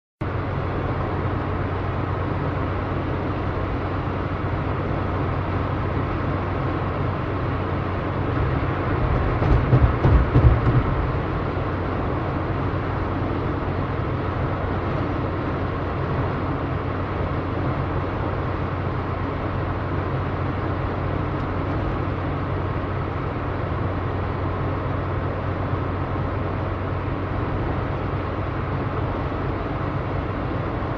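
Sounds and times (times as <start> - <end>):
car engine hum: 0.2 - 30.9
road noise: 0.2 - 30.9
low rumble: 7.9 - 13.7.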